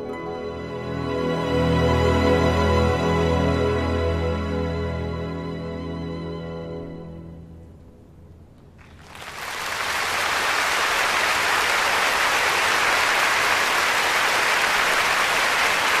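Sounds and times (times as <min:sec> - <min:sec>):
orchestra chord: 0:00.0 - 0:07.8
audience applause: 0:08.8 - 0:16.0.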